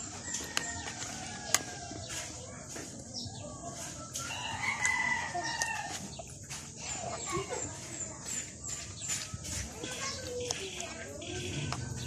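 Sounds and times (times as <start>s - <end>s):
rooster crowing: 4.2s - 6.0s.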